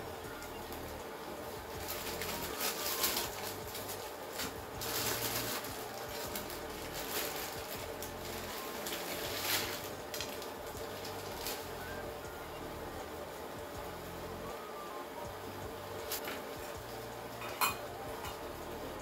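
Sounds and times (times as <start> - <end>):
plastic packaging crinkling: 0.0 - 12.7, 16.0 - 19.0.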